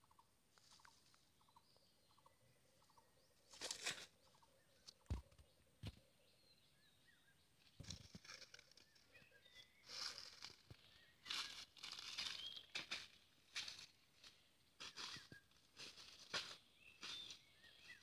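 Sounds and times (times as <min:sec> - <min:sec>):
faint bird chirps: 0:00.0 - 0:13.3, 0:14.2 - 0:15.7, 0:16.4 - 0:18.0
dry leaves rustling: 0:03.5 - 0:04.1, 0:09.8 - 0:18.0.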